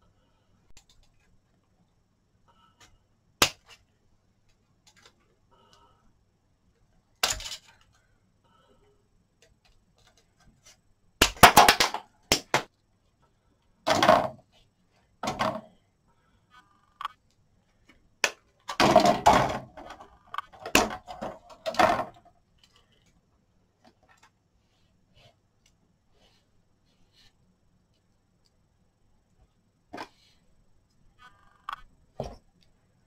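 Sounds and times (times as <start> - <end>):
plastic frames clattering: 18.2 - 22.3.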